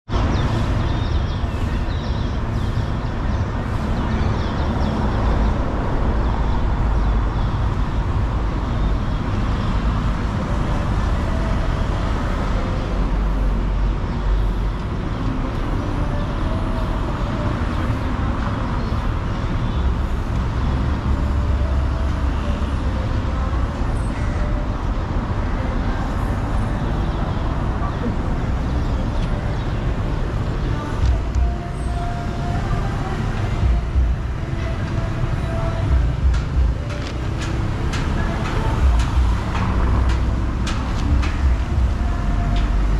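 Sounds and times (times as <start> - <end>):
road traffic noise: 0.0 - 42.9
faint voices: 9.9 - 42.9.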